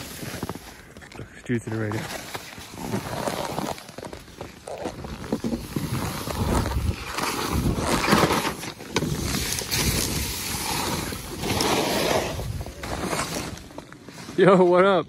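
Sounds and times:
skis scraping over snow: 0.0 - 15.0
wind on microphone: 5.7 - 8.1.

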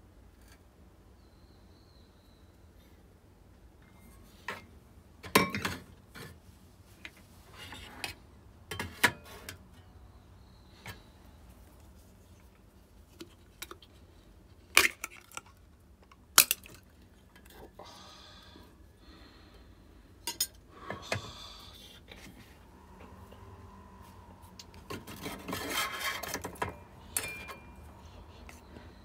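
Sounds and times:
cookware clinking and knocking: 5.3 - 5.8.

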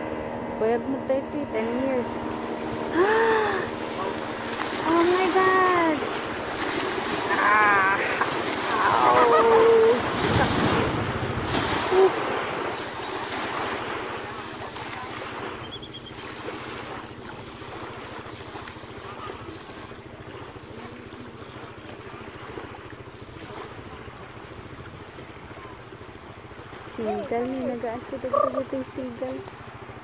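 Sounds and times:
waves washing in shallows: 0.0 - 30.0
person crying out excitedly: 7.3 - 10.0.

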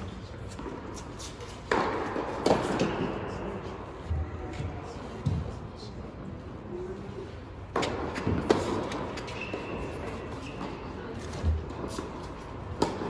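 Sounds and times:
tennis ball hit by racquet: 0.5 - 3.2, 7.7 - 13.0
ball bouncing on hard court: 1.6 - 3.2, 7.7 - 13.0
shoe squeak: 9.2 - 10.9.

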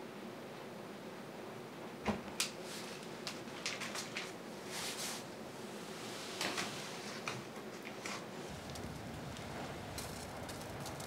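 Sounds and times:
faint steady hiss: 0.0 - 11.0
burning paper crackling: 8.4 - 11.0.

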